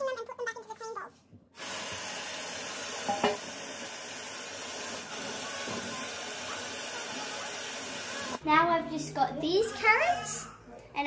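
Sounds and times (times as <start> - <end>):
tap water running: 1.6 - 8.4.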